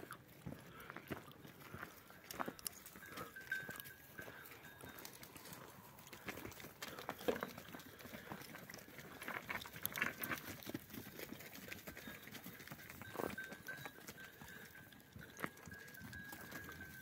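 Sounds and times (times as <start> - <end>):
goat hooves on stony ground: 0.0 - 17.0.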